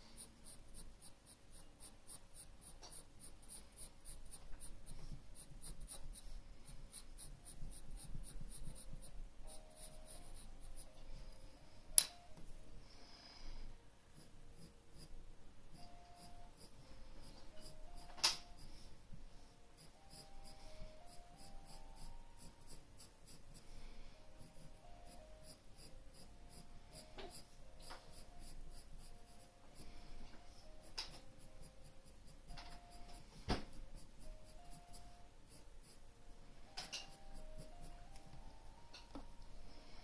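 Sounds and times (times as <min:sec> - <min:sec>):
pencil scratching on paper: 0:00.0 - 0:11.1, 0:14.2 - 0:18.9, 0:19.8 - 0:36.1, 0:36.7 - 0:38.2
faint stepping-note tune: 0:24.0 - 0:40.0.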